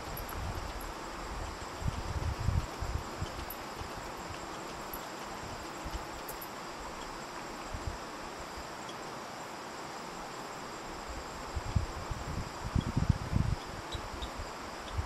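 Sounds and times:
crickets trilling: 0:00.0 - 0:15.0
even outdoor hiss: 0:00.0 - 0:15.0.

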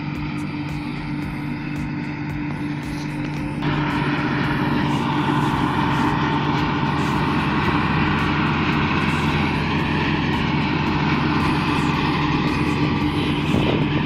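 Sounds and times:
diesel engine drone: 0:00.0 - 0:14.0
harvester threshing rush: 0:03.6 - 0:14.0.

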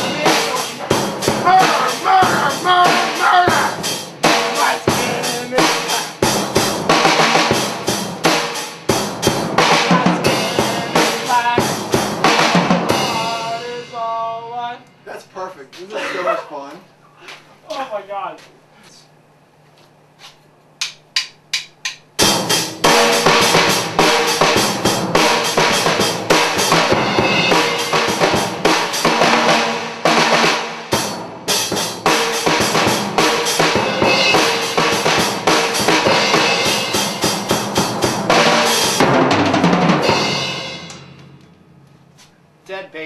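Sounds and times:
rock band playing: 0:00.0 - 0:14.8, 0:22.2 - 0:41.6
drumstick clicks: 0:20.8 - 0:22.1.

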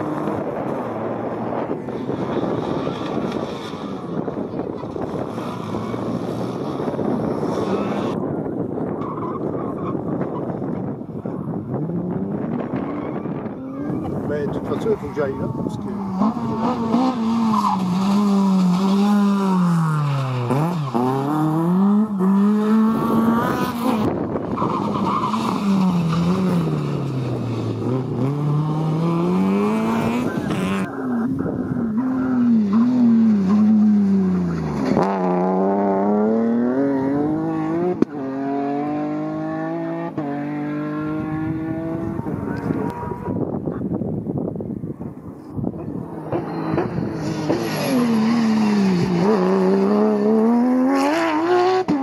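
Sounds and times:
rally car engines revving hard: 0:00.0 - 0:08.2, 0:11.7 - 0:44.0, 0:45.4 - 0:52.0
car accelerating through gears: 0:15.4 - 0:24.3, 0:25.2 - 0:43.6, 0:45.9 - 0:52.0.

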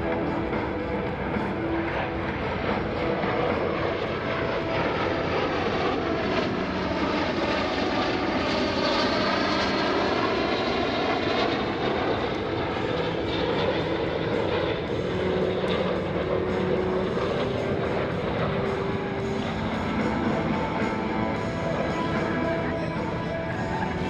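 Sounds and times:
jet engines whining: 0:00.0 - 0:24.0.

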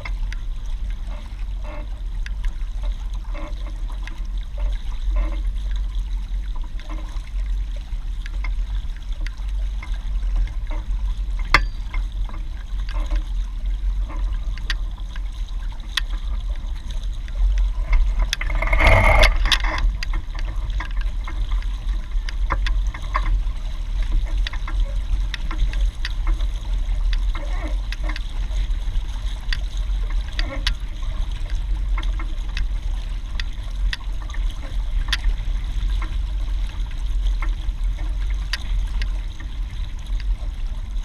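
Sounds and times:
low rumble: 0:00.0 - 0:30.3
water sloshing against hull: 0:00.0 - 0:41.0.

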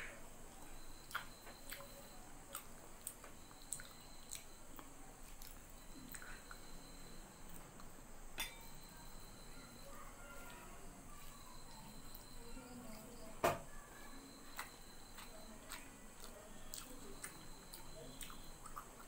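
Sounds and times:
person chewing: 0:00.5 - 0:06.8, 0:14.5 - 0:19.0.

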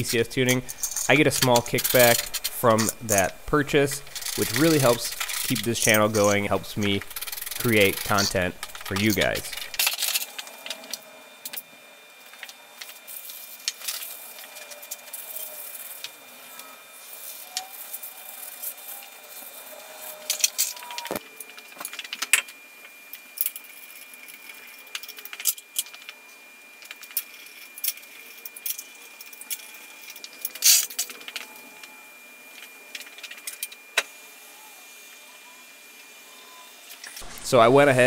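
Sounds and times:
hand tool rattling: 0:00.0 - 0:10.2.

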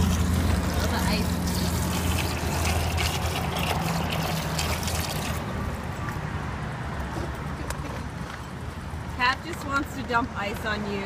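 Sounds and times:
water and ice pouring into bucket: 0:00.0 - 0:05.5.

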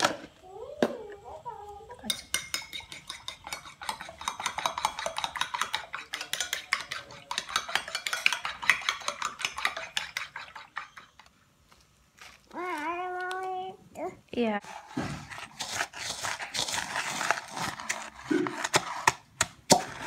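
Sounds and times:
spoon clinking against bowl: 0:02.0 - 0:11.3.

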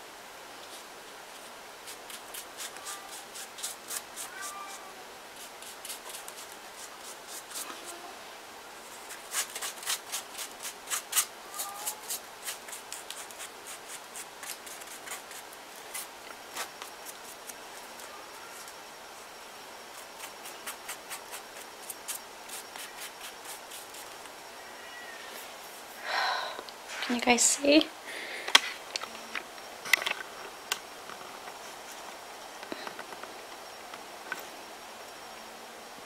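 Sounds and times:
paste brush stroking paper: 0:19.9 - 0:24.3.

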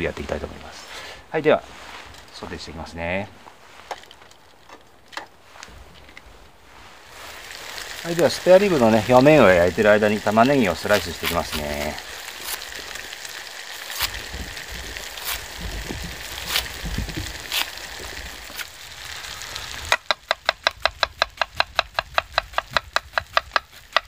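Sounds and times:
onion peeling clicks: 0:13.6 - 0:18.7
knife chopping onion on board: 0:20.3 - 0:24.0.

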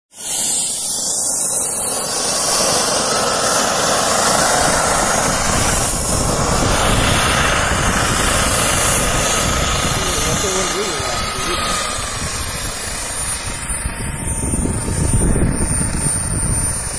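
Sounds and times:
model jet turbine roar and whine: 0:00.1 - 0:16.9.

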